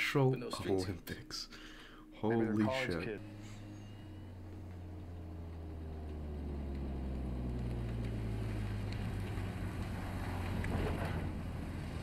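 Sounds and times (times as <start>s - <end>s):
car engine rumble passing: 3.2s - 12.0s.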